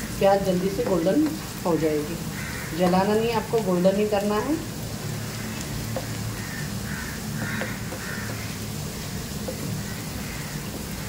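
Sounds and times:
onions sizzling in oil: 0.0s - 11.0s
bird calling: 0.8s - 3.3s, 5.0s - 11.0s.

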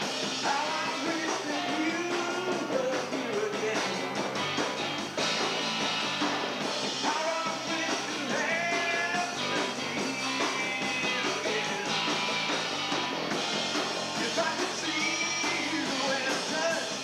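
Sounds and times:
bass guitar: 0.0s - 17.0s
drums: 0.0s - 17.0s
electric guitar: 0.0s - 17.0s
person singing: 0.4s - 4.2s, 7.0s - 12.0s, 14.2s - 17.0s.

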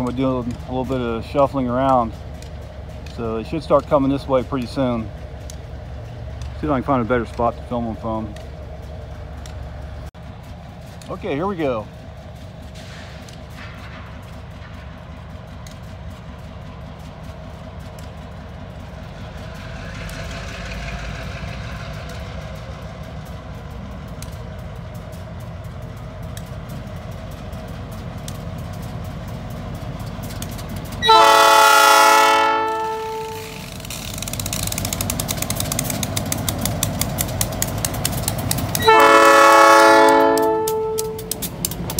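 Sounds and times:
diesel locomotive engines rumbling: 0.0s - 41.9s
locomotive horn blast: 31.0s - 33.6s, 38.8s - 41.4s.

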